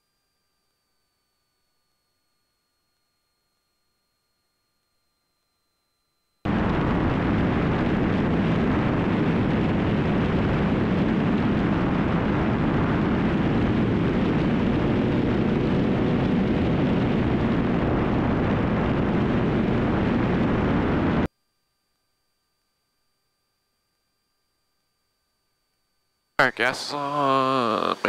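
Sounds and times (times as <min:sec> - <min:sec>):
propeller airplane engine in flight: 0:06.5 - 0:21.3.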